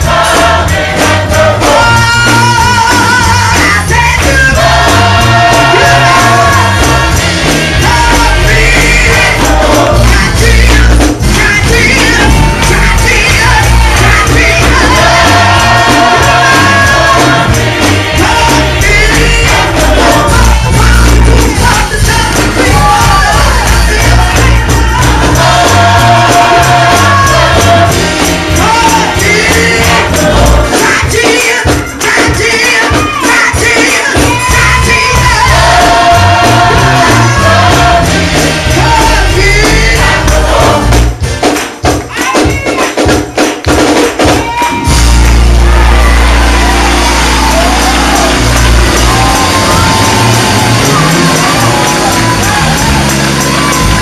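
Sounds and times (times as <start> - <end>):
bass line: 0.0 - 30.8, 34.2 - 41.3, 44.8 - 54.0
congregation singing gospel: 0.0 - 54.0
tambourine: 0.0 - 54.0
hand-clapping: 41.0 - 54.0.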